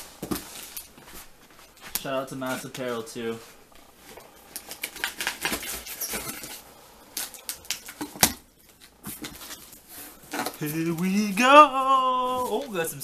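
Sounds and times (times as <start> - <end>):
cardboard box cracking open: 4.6 - 6.5
knife slitting packing tape: 4.6 - 6.5.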